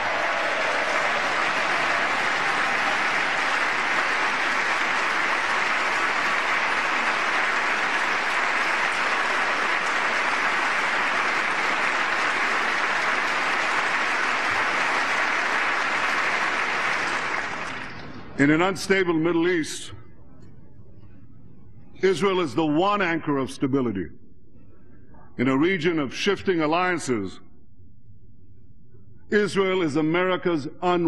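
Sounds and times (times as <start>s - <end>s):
audience applause: 0.0s - 18.2s.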